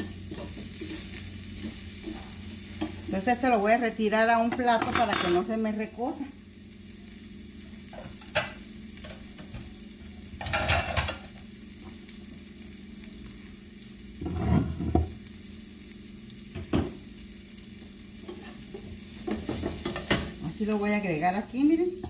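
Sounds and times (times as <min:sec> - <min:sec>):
onions sizzling in a frying pan: 0:00.0 - 0:22.0
kitchen utensils clattering: 0:04.6 - 0:05.5, 0:10.4 - 0:11.3.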